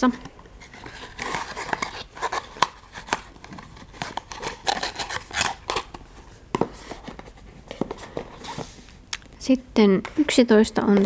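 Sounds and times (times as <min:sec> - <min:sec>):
cardboard box and pouch rustling: 0:00.6 - 0:08.9.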